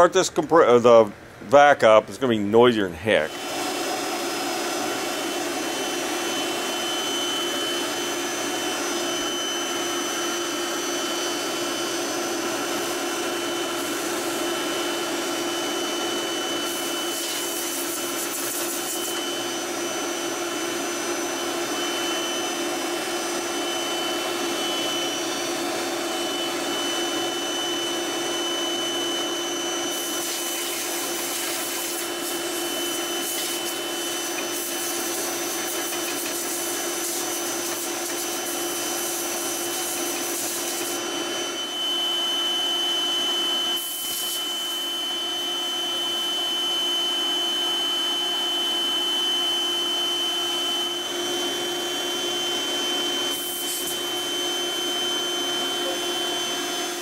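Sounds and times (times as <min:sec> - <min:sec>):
shop vacuum humming: 0:02.5 - 0:57.0.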